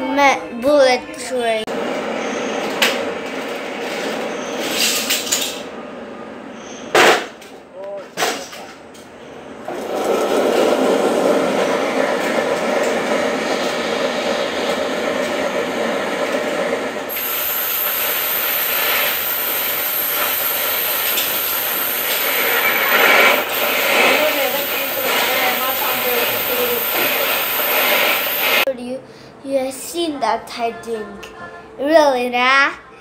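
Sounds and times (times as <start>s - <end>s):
high-speed trains rushing past: 1.2s - 7.6s, 9.1s - 28.7s
sharp high hiss: 17.1s - 28.7s.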